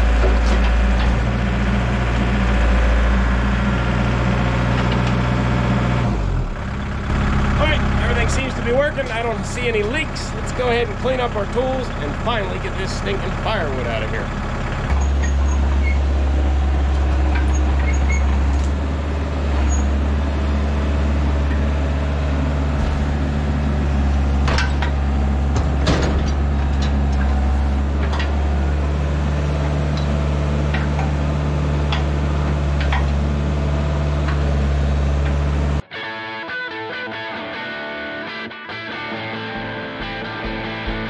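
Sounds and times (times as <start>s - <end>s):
logs knocking against metal: 0.0s - 1.5s, 22.6s - 33.5s
diesel excavator engine running: 0.0s - 35.9s, 39.4s - 41.0s
guitar music: 35.8s - 41.0s.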